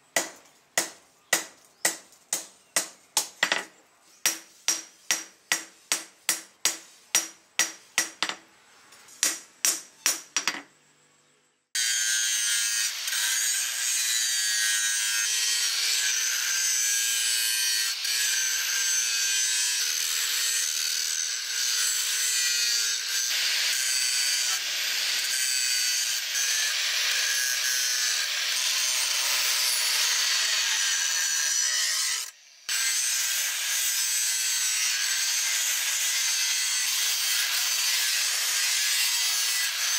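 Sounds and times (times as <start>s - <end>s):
angle grinder grinding steel: 11.8s - 39.9s.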